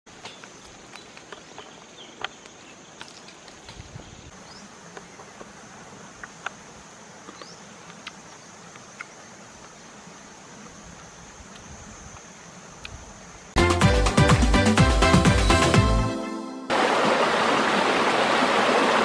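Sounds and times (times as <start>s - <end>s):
insects droning: 0.1s - 13.6s
fruit being picked clicks: 7.2s - 9.8s, 10.9s - 13.0s.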